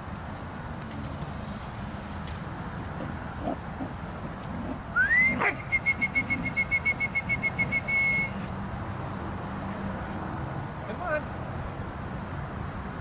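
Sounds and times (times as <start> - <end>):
whistle rising in pitch: 5.0 - 8.4.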